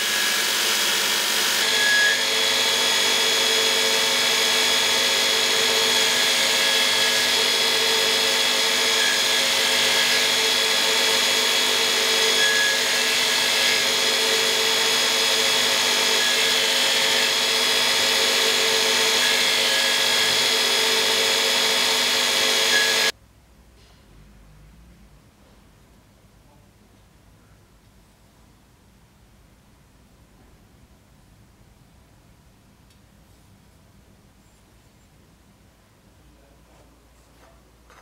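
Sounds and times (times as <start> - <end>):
blade grinding on belt: 0.0 - 23.1
grinder motor whine: 0.0 - 23.1.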